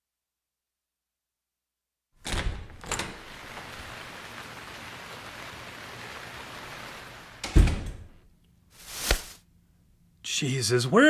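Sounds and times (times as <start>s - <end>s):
steady hiss: 2.3s - 9.4s.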